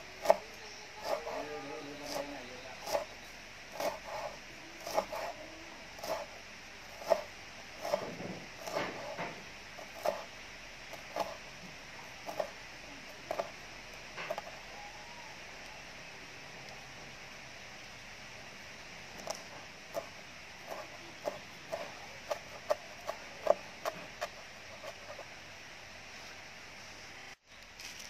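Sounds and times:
knife chopping on wooden board: 0.2s - 0.4s, 1.0s - 5.4s, 6.0s - 6.3s, 6.9s - 10.3s, 10.9s - 11.4s, 12.2s - 12.6s, 13.2s - 13.6s, 19.2s - 25.3s.

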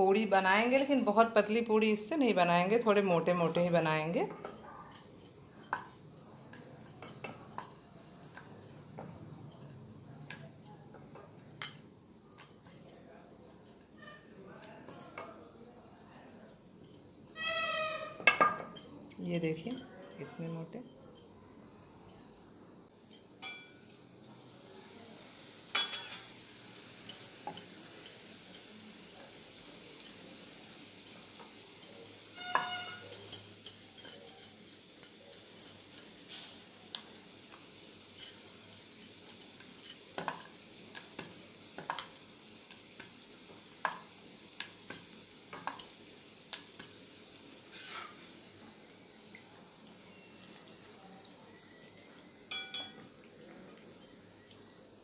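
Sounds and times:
spatula crackles and clinks on pan: 17.3s - 19.8s, 23.1s - 24.0s, 25.7s - 48.4s, 52.4s - 54.5s
oil sizzling: 23.4s - 33.6s, 35.8s - 55.0s.

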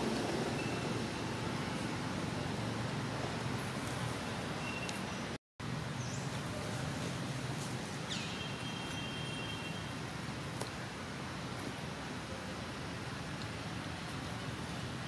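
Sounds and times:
outdoor background hiss: 0.0s - 15.0s
thin whistled call: 4.6s - 5.2s.

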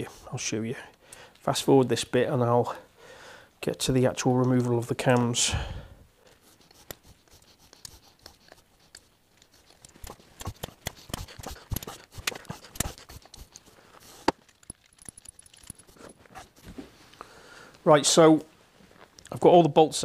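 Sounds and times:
metallic clicks of tool and bolts: 14.3s - 16.2s.

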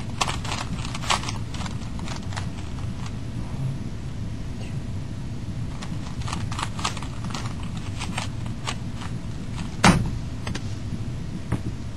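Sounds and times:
puzzle cube clicking: 0.0s - 3.1s, 5.7s - 9.8s.

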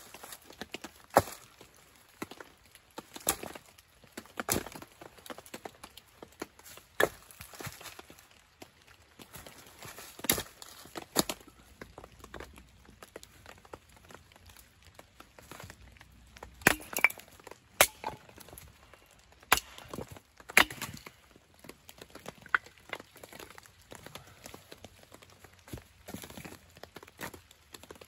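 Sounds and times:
wood splitting crack: 3.0s - 7.9s, 10.1s - 12.6s, 15.6s - 24.6s
axe chopping wood: 16.7s - 18.6s, 19.5s - 21.2s.

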